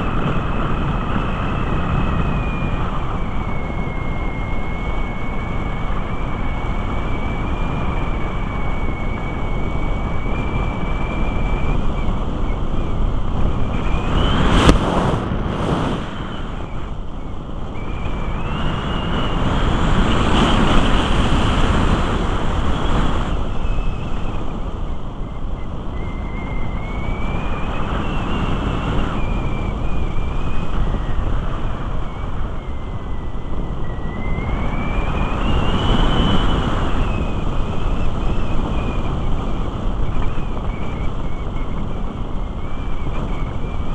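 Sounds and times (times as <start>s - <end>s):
airflow rushing over camera: 0.0s - 43.9s
high whine: 0.0s - 43.9s
rough gust of noise: 13.4s - 17.2s.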